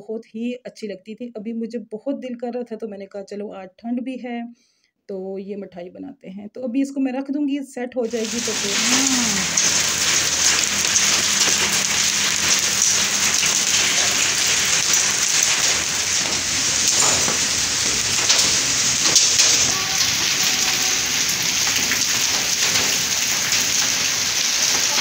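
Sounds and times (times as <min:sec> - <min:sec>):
hail and rain on concrete: 0:08.1 - 0:25.0.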